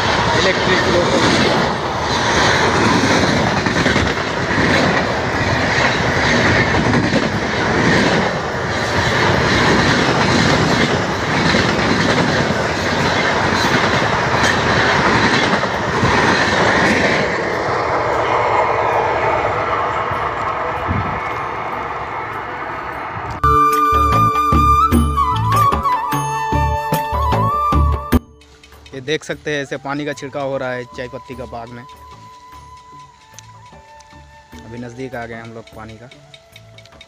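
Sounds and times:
train wheels clattering over rails: 0.0 - 19.2.

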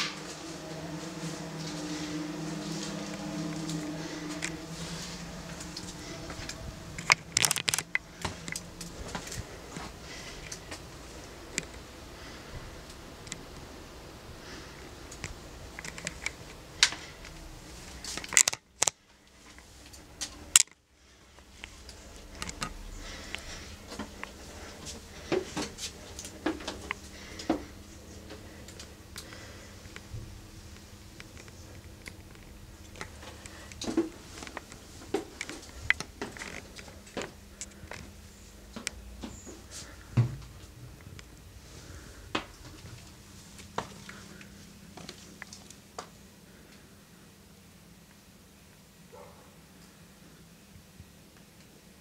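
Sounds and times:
handling noise: 0.0 - 12.6.

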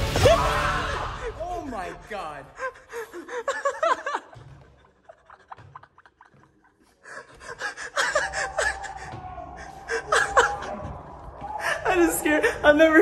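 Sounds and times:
man laughing: 3.0 - 6.8.

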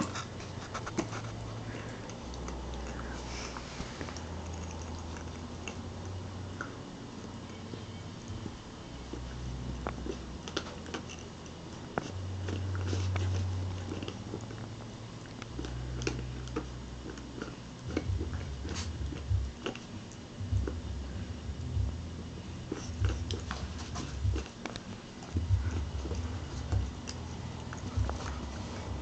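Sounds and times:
puppy chewing on a toy: 0.0 - 29.0
low rumble: 20.4 - 24.5, 25.4 - 29.0.

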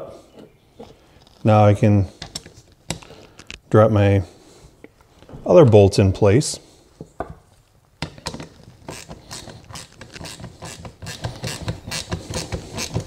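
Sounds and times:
small bolts clicking and rattling: 8.0 - 13.0.

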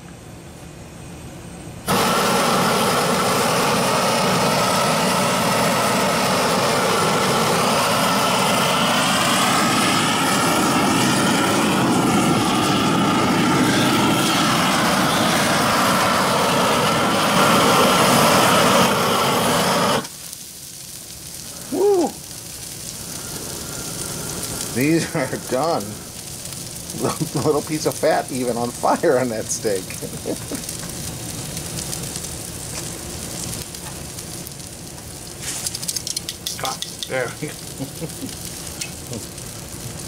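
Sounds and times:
propane torch roaring: 0.0 - 40.0.

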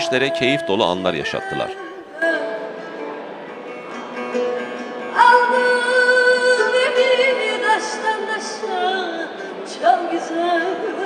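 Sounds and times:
woman singing: 0.0 - 2.8, 5.0 - 11.0
plucked lute: 0.0 - 11.0.

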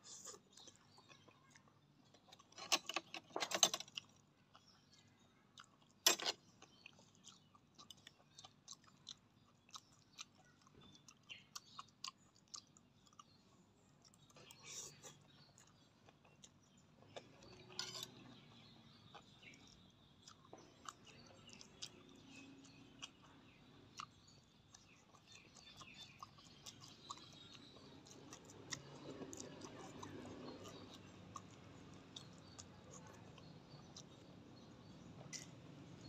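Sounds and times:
faint chewing: 0.0 - 36.0.

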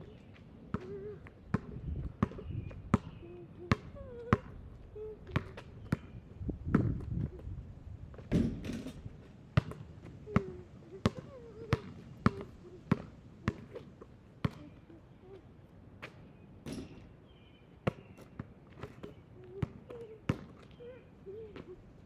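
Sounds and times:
basketball bouncing on asphalt: 0.0 - 7.4, 8.1 - 14.8, 17.8 - 21.8
ball hitting backboard and rim: 8.3 - 9.0, 16.6 - 17.0.

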